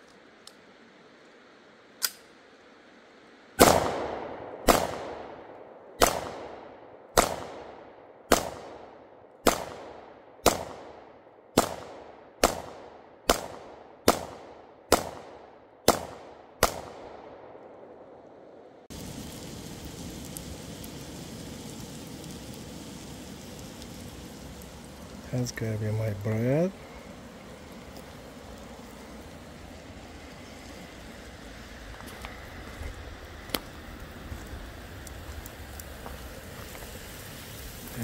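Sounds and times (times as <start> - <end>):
sharp echoing bangs: 3.6 - 18.1.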